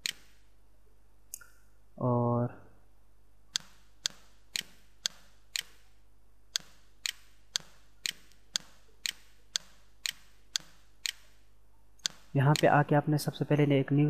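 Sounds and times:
sharp even ticking: 3.5 - 5.9, 6.5 - 11.4, 12.0 - 12.9.

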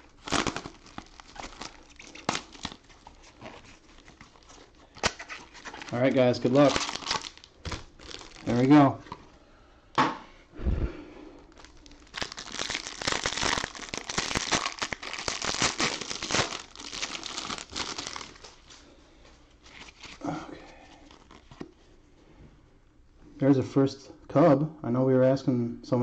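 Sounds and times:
plastic wrapper crinkling and tearing: 0.0 - 9.2, 11.5 - 18.8, 19.6 - 20.3, 20.9 - 21.7.

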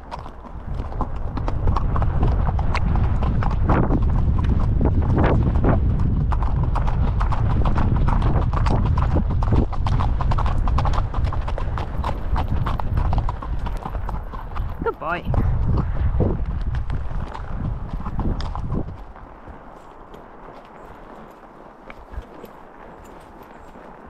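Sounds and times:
horse hoofbeats clip-clopping: 0.0 - 24.0
low rumble: 1.3 - 19.1.

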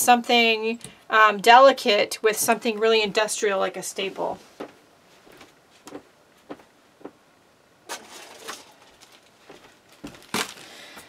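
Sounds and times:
plastic rustling: 7.9 - 11.0.

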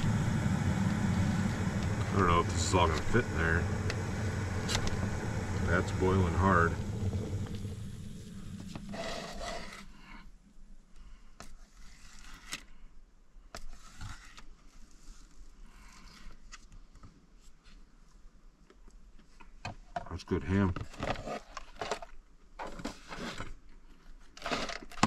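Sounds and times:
gas stove hissing: 0.0 - 9.7
pot boiling: 0.0 - 9.7.

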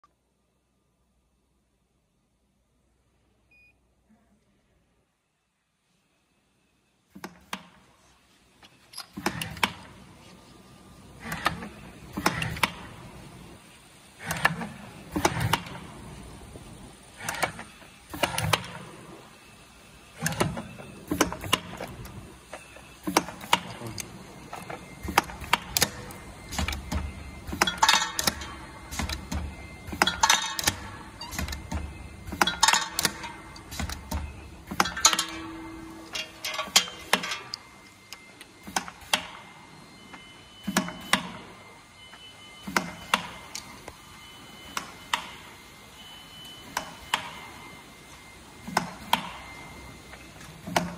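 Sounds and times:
filling machine clicking and clacking: 20.2 - 39.4.

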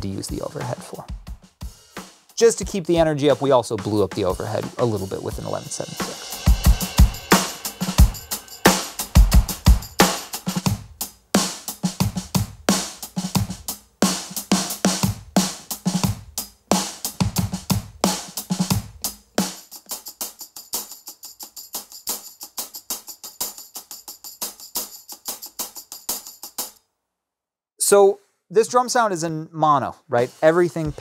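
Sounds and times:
drum kit groove: 0.0 - 26.8, 28.6 - 31.0
hi-hat strokes: 1.3 - 3.5, 4.4 - 26.8, 30.1 - 31.0
tambourine strokes: 4.8 - 12.0, 18.0 - 26.8.

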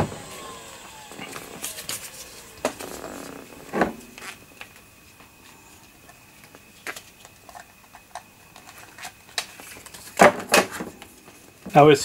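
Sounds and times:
hard disk spinning down: 0.0 - 6.6.

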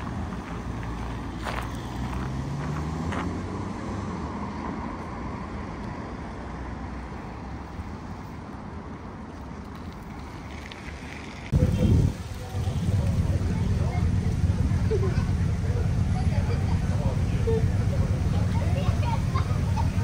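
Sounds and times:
footsteps: 0.0 - 3.4
car accelerating past: 0.0 - 5.5
road noise: 0.0 - 20.0.

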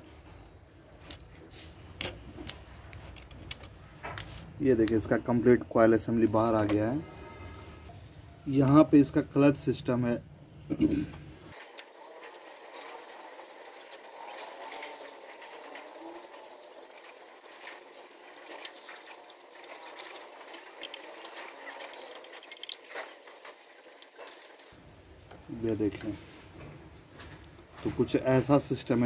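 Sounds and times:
screwdriver clicks and scrapes: 1.9 - 4.5.

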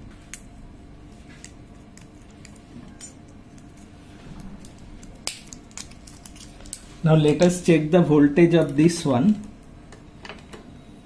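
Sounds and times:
light clicks and crinkles: 1.2 - 6.9
battery peeled from blister pack: 4.6 - 6.8.

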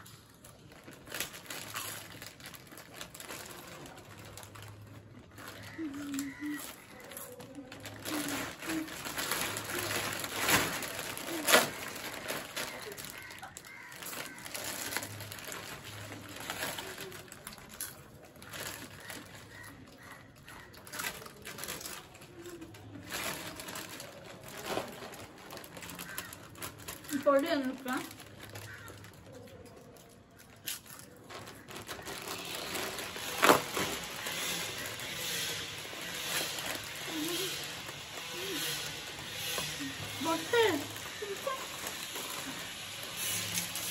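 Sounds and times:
foil packets crinkling and tearing: 0.0 - 43.9
potato chips crunching: 0.0 - 43.9.

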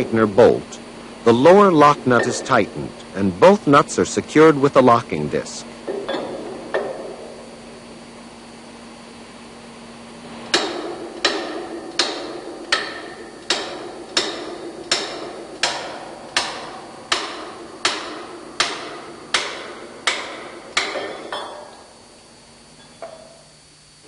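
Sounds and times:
hammer striking spanner: 1.3 - 3.6, 5.9 - 7.4, 10.5 - 22.0, 22.8 - 23.5.

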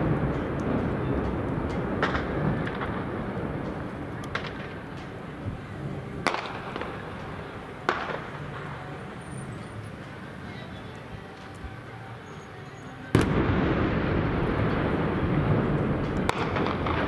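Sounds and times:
distant explosion rumble: 0.0 - 8.9, 13.1 - 17.0
sharp explosive bangs: 13.1 - 17.0.

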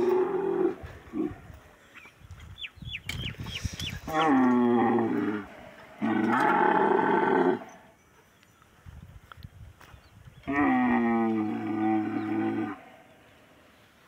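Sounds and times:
camel bellowing: 0.0 - 1.5, 4.1 - 7.9, 10.4 - 13.0.

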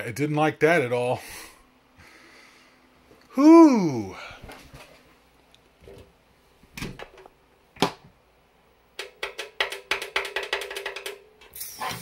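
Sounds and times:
faint steady hum: 0.0 - 9.3.

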